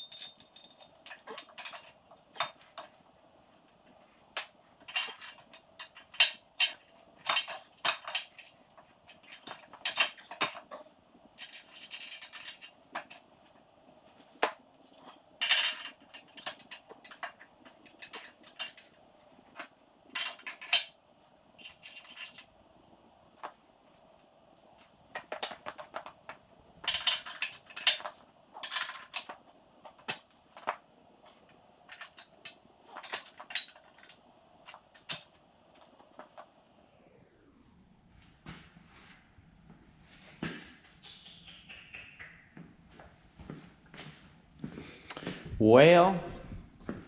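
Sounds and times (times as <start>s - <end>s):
hand tools clinking on steel: 0.0s - 22.5s, 23.4s - 36.4s.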